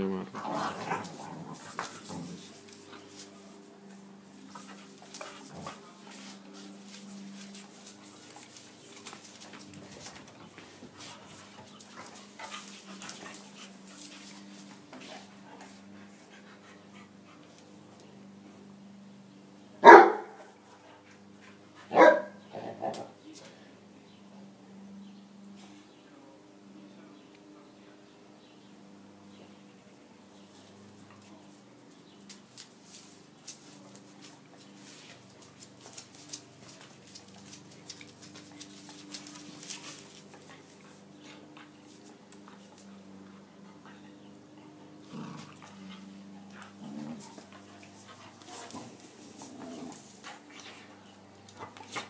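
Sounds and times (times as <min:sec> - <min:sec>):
dogs scuffling on tiled floor: 0:00.4 - 0:18.4, 0:30.0 - 0:52.0
dog barking: 0:19.8 - 0:20.4, 0:21.9 - 0:22.4.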